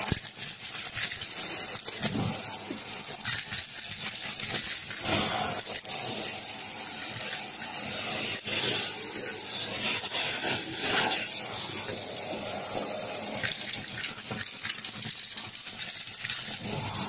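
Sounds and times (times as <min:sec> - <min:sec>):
debris rattling up vacuum tube: 0:00.0 - 0:09.3, 0:13.3 - 0:17.0
vacuum cleaner suction hiss: 0:00.0 - 0:17.0.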